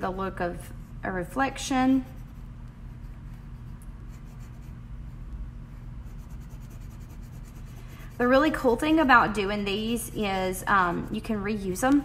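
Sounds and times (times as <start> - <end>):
marker rubbing on styrofoam: 2.0 - 4.8, 5.7 - 10.4.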